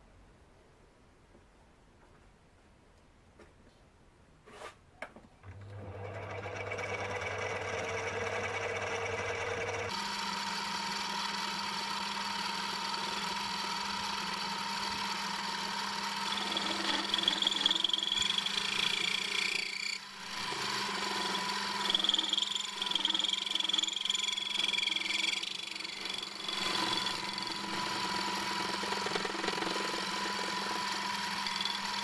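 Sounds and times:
lathe motor running: 0:05.7 - 0:32.0
lathe tool cutting metal: 0:08.4 - 0:32.0.

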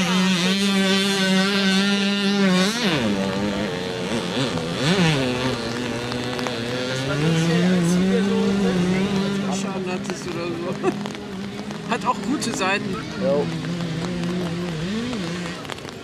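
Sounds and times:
moped engines revving: 0:00.0 - 0:16.0.

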